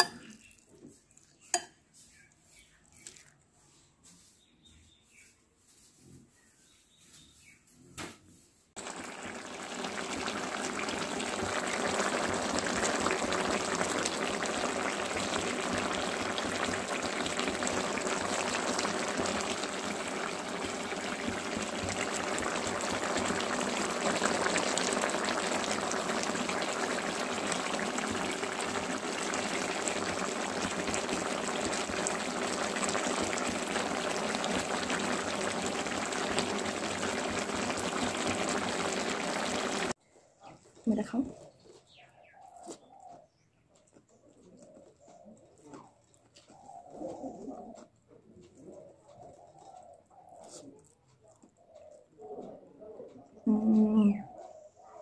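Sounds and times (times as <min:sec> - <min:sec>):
curry bubbling and sizzling: 0:00.0 - 0:03.3, 0:08.8 - 0:40.0.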